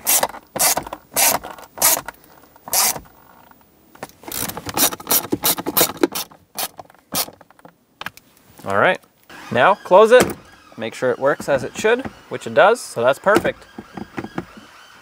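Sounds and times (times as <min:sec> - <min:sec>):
hand ratchet clicking: 0:02.7 - 0:03.0.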